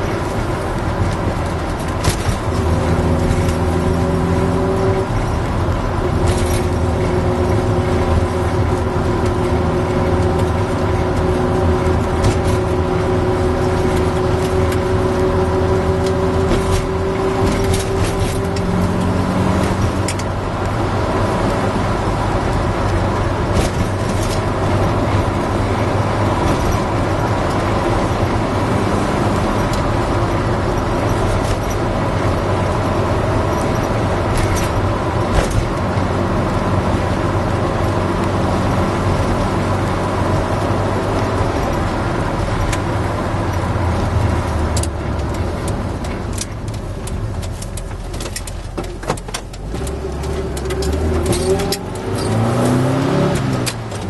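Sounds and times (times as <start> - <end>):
knocks and rattles: 0.0 - 20.7, 22.4 - 28.4
engine running from inside cabin: 0.0 - 54.0.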